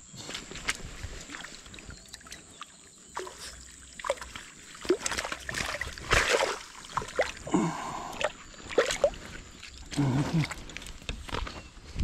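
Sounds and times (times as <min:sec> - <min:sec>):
water splashing and sloshing: 0:00.3 - 0:11.5.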